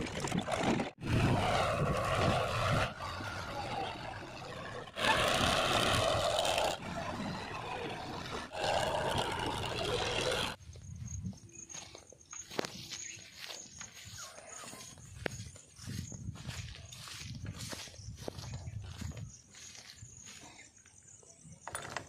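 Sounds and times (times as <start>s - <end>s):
tractor diesel engines labouring: 0.0s - 10.6s.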